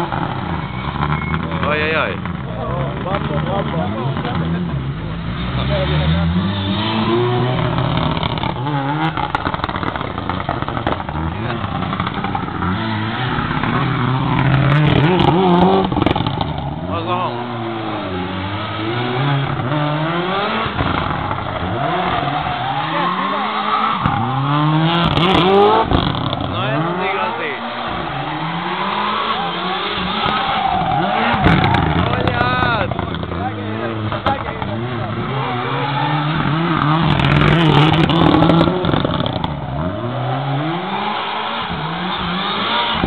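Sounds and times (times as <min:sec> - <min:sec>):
car engine revving hard: 0:00.0 - 0:43.0
engine crackles: 0:00.0 - 0:43.0
tyres squealing: 0:20.8 - 0:43.0.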